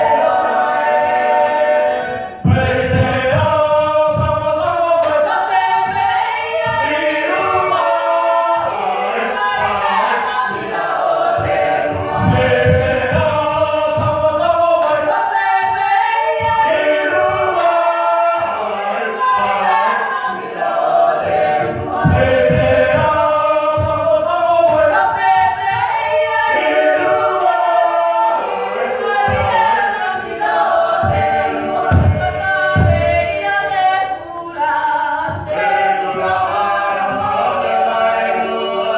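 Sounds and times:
choir singing unaccompanied: 0:00.0 - 0:38.9
low thuds: 0:02.4 - 0:08.8, 0:10.4 - 0:18.6, 0:21.2 - 0:26.4, 0:30.6 - 0:33.6.

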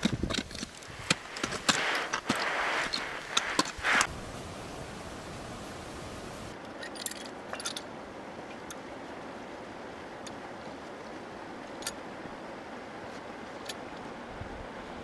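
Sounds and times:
steady rushing noise: 0:00.8 - 0:06.6.

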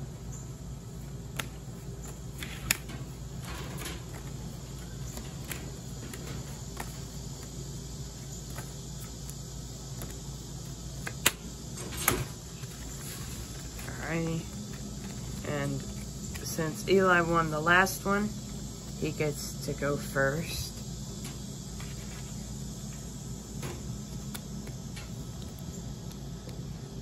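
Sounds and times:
insects chirring: 0:00.0 - 0:27.0
playing cards snapping and tapping: 0:01.2 - 0:07.6, 0:08.4 - 0:10.2, 0:10.9 - 0:11.4, 0:23.6 - 0:26.6.

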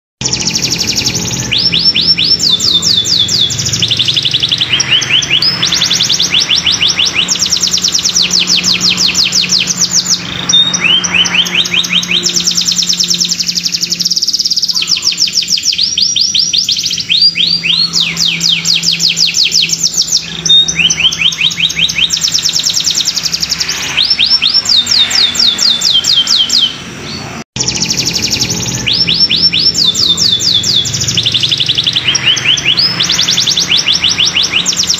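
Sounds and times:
canary singing trills: 0:00.2 - 0:34.9.

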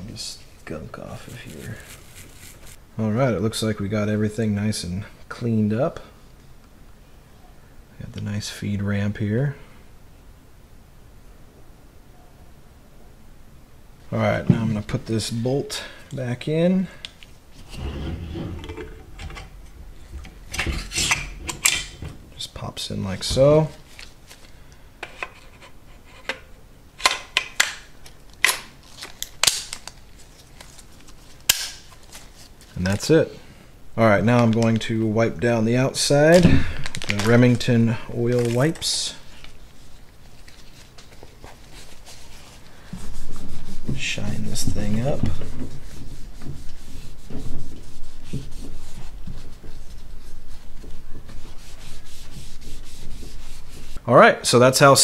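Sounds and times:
cloth rubbing on metal: 0:00.9 - 0:02.8, 0:17.5 - 0:24.0, 0:38.2 - 0:54.0.

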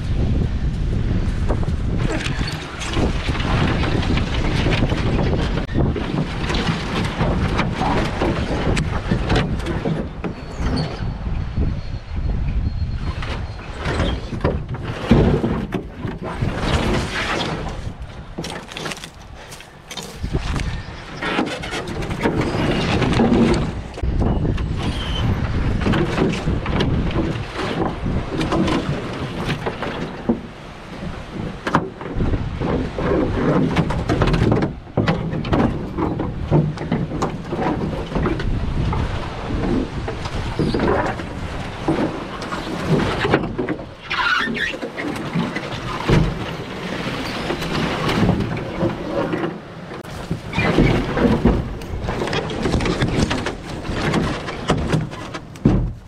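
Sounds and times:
branches scraping canoe hull: 0:00.0 - 0:11.9, 0:12.6 - 0:56.0
footsteps through dry brush: 0:18.6 - 0:20.9
brief squeal: 0:24.3 - 0:25.4.

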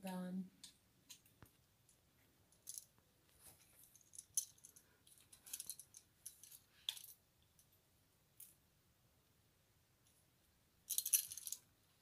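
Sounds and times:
clicks and clinks of wires: 0:00.6 - 0:07.7, 0:10.9 - 0:11.7.

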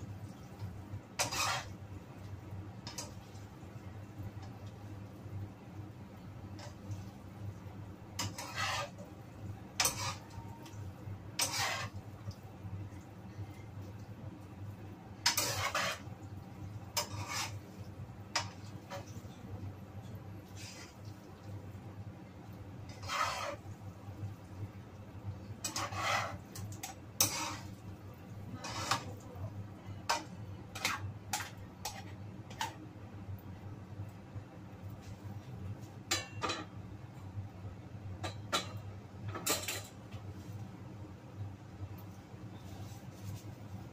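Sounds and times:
spatula scraping a wok: 0:00.3 - 0:02.0, 0:02.8 - 0:03.6, 0:06.5 - 0:07.3, 0:08.0 - 0:12.4, 0:15.1 - 0:19.5, 0:20.4 - 0:21.3, 0:22.7 - 0:24.2, 0:25.4 - 0:32.8, 0:42.5 - 0:43.9.

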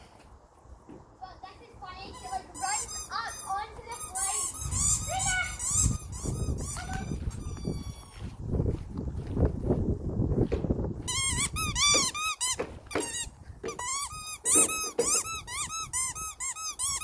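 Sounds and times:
squeaky toy squeaking: 0:02.0 - 0:08.1, 0:11.1 - 0:17.0.

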